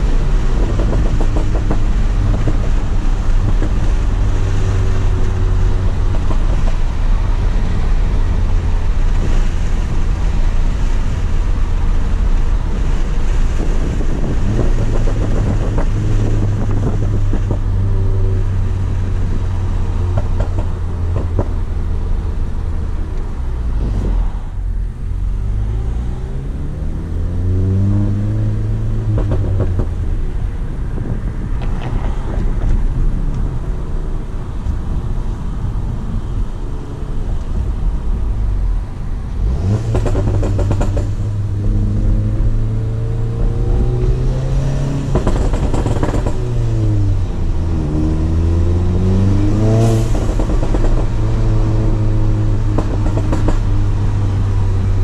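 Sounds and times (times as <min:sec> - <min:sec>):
exhaust pops and crackles: 0:00.0 - 0:18.1, 0:18.9 - 0:24.2, 0:28.8 - 0:35.2, 0:39.2 - 0:42.6, 0:45.0 - 0:48.4, 0:49.7 - 0:55.0
car exhaust drone: 0:00.0 - 0:55.0
car engine accelerating: 0:37.2 - 0:55.0.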